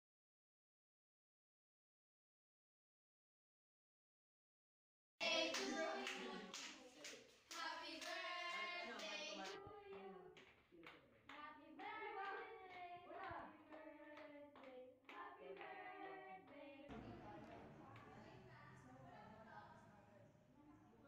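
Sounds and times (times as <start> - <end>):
girls singing together: 5.2 - 10.4, 11.3 - 16.9
hand claps: 5.3 - 18.1.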